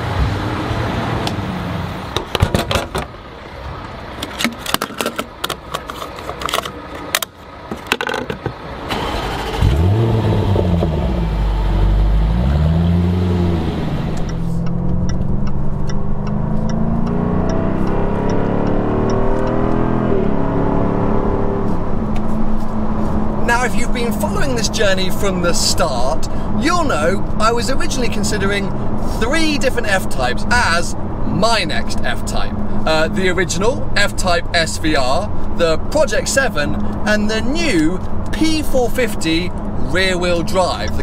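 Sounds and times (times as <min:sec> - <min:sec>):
car engine accelerating: 0:08.8 - 0:25.6
car engine revving: 0:08.9 - 0:25.6.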